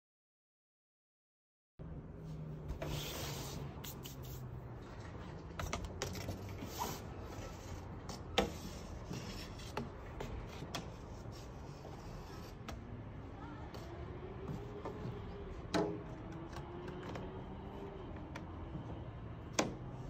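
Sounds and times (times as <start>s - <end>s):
window screen scraping frame: 2.6s - 12.7s.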